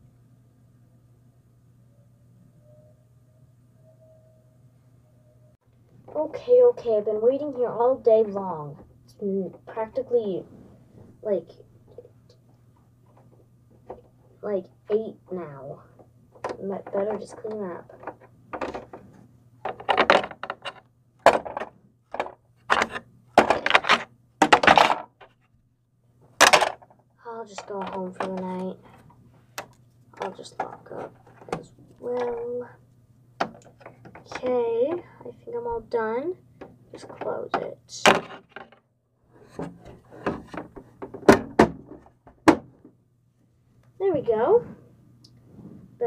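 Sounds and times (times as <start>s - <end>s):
plastic clicks and knocks: 16.4s - 25.4s, 26.4s - 27.0s, 29.6s - 32.5s, 33.4s - 34.5s
plastic toy pieces clattering: 19.6s - 25.4s, 26.4s - 26.9s, 27.5s - 29.0s.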